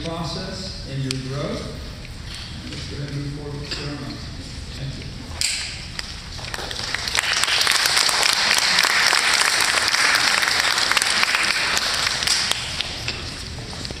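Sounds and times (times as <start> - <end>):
audience applauding: 6.4 - 13.1.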